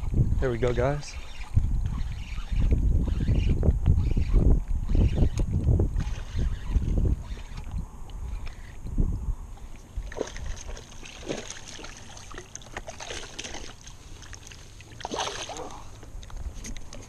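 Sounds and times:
water splashing against rocks: 10.0s - 16.9s.

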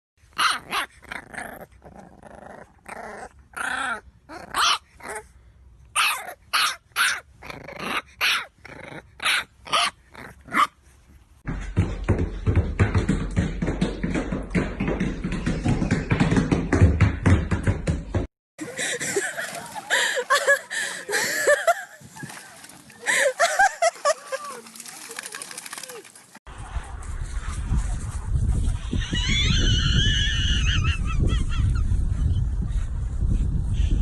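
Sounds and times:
puppy barking and yipping: 0.4s - 1.0s, 4.5s - 5.2s, 6.0s - 7.3s, 9.2s - 10.7s
continuous noise with rapid clicks: 24.8s - 26.3s.

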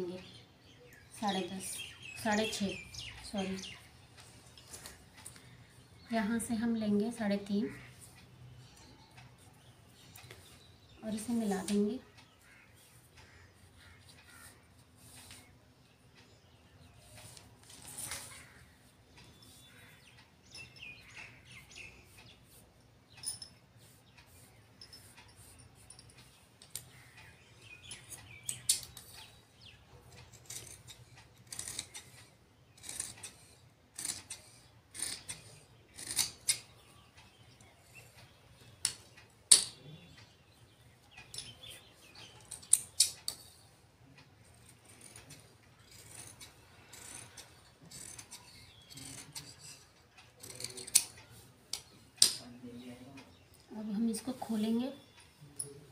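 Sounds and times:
scissors snipping fabric: 30.2s - 36.7s, 44.5s - 52.4s.

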